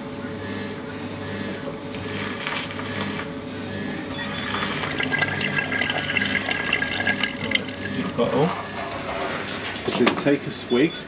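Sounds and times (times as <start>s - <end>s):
pump humming: 1.2s - 9.7s
milk stream pouring: 4.4s - 8.3s.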